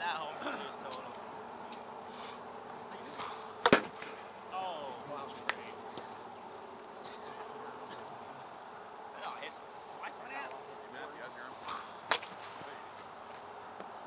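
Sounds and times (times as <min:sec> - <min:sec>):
buzzing drone: 0:00.0 - 0:14.0
ball knocks: 0:03.1 - 0:04.2, 0:11.6 - 0:12.7.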